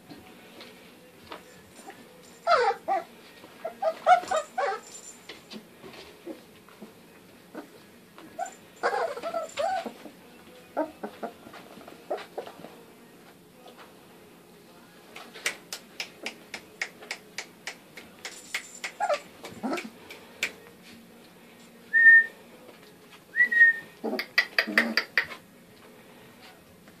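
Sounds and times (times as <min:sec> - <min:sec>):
puppy yelping: 0:02.4 - 0:04.8, 0:08.4 - 0:10.0, 0:19.0 - 0:19.9
puppies yipping and squealing: 0:02.4 - 0:05.0, 0:08.4 - 0:10.1, 0:18.8 - 0:19.9.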